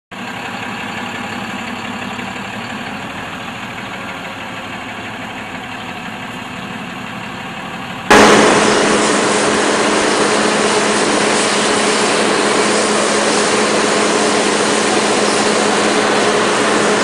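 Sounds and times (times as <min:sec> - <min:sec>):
diesel bus engine idling: 0:00.1 - 0:17.0.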